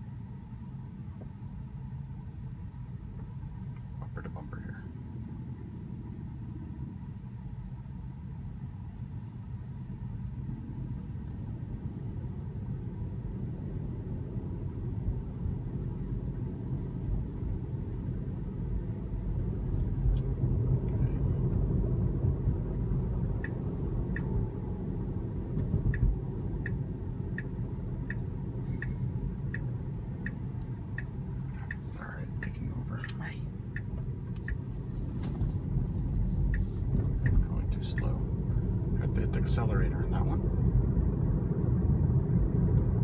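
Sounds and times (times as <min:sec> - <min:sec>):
road and tyre rumble in car: 0:00.0 - 0:43.0
turn signal ticking: 0:14.6 - 0:43.0.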